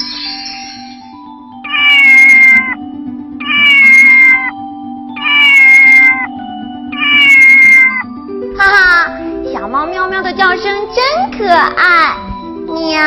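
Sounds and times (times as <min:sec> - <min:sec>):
low background music note: 0:00.0 - 0:13.0
kitten meowing: 0:01.7 - 0:02.8, 0:03.4 - 0:04.5, 0:05.2 - 0:06.3, 0:06.9 - 0:08.1.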